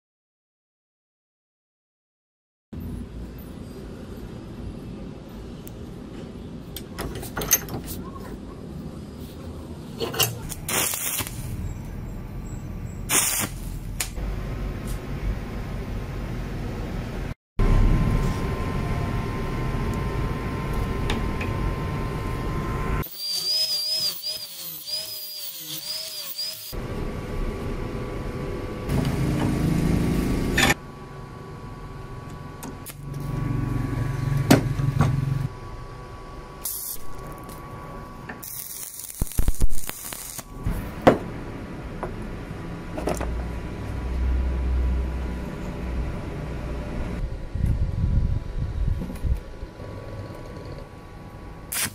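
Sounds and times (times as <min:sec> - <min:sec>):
small power tool whining: 0:22.9 - 0:26.8.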